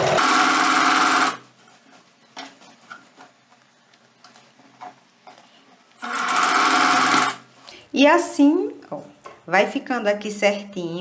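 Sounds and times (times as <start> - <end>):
sewing machine stitching: 0.0 - 1.4, 6.0 - 7.4.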